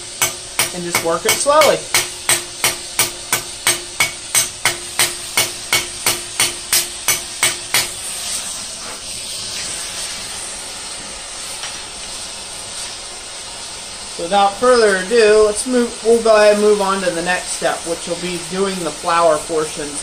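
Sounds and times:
gas torch flame hissing: 0:00.0 - 0:20.0
hammer striking steel rod: 0:00.2 - 0:08.0.

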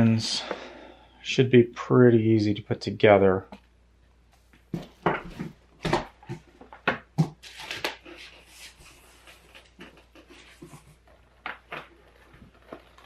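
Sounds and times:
knocks and scrapes of cardboard: 0:04.8 - 0:13.0
rustling: 0:07.3 - 0:13.0.

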